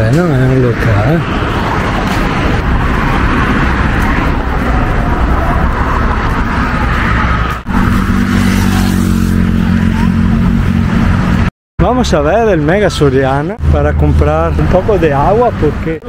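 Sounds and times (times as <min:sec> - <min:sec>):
passing vehicle engine hum: 0:00.0 - 0:11.5
street traffic rush: 0:00.0 - 0:16.0.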